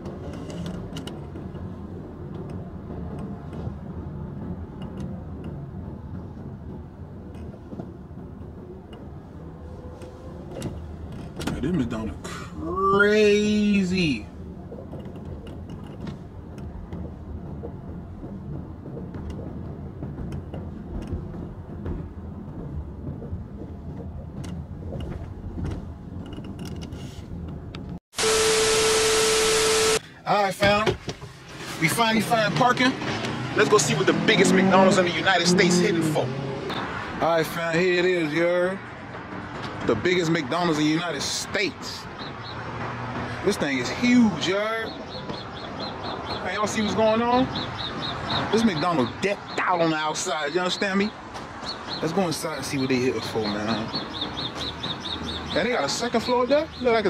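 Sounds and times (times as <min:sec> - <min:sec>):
car engine and road rumble: 0:00.0 - 0:57.0
steady beep tone: 0:28.2 - 0:30.0.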